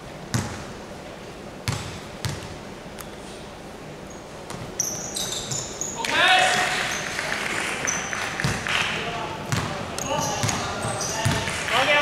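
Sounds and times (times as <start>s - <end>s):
basketball bouncing on wooden floor: 0.3s - 0.6s, 1.6s - 2.5s, 9.5s - 11.6s
sneaker squeaks: 4.0s - 8.7s, 9.5s - 11.6s.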